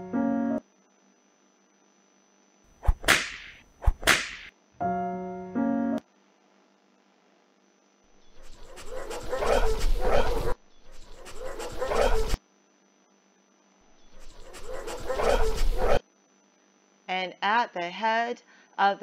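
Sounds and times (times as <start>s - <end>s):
sled dogs barking: 8.4s - 12.4s, 14.2s - 16.0s.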